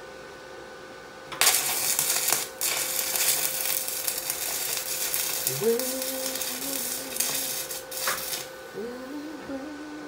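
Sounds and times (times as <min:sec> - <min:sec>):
welding arc crackling: 0:01.3 - 0:08.7
man singing a note: 0:05.5 - 0:07.8, 0:08.7 - 0:10.0.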